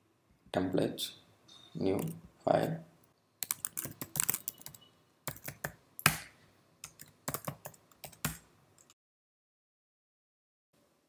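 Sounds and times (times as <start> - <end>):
computer keyboard typing: 3.4 - 6.2, 6.8 - 9.0.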